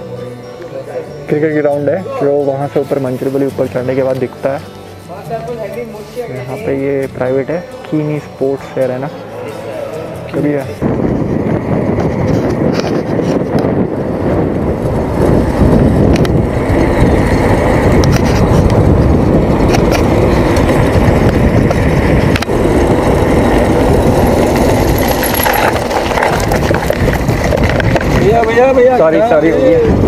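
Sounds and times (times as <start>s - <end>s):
bicycle tyres rumbling: 9.7s - 30.0s
wind buffeting microphone: 10.1s - 30.0s.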